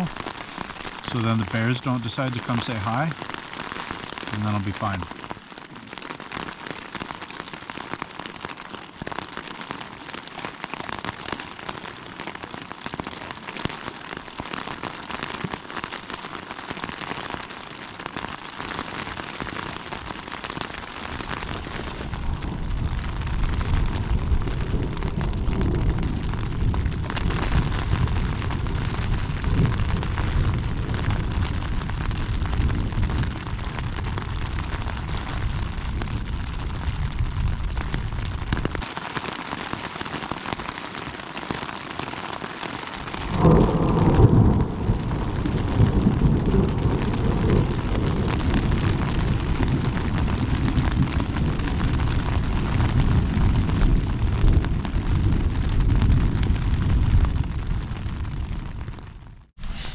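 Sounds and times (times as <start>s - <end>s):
heavy rain on a tent: 0.0s - 59.9s
low rumble of thunder: 21.3s - 38.8s, 43.2s - 59.5s.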